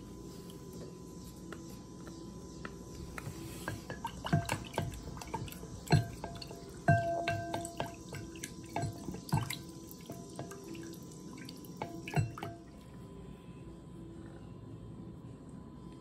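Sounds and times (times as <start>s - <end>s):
metal spoon knocking on containers: 3.9s - 10.8s.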